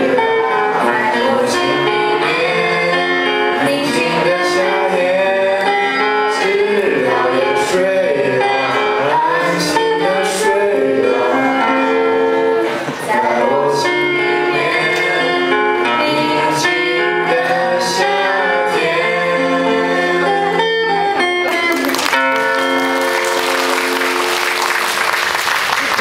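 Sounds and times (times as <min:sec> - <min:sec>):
young voices singing: 0:00.0 - 0:21.0
guitar accompaniment: 0:00.0 - 0:26.0
audience applause: 0:21.5 - 0:26.0.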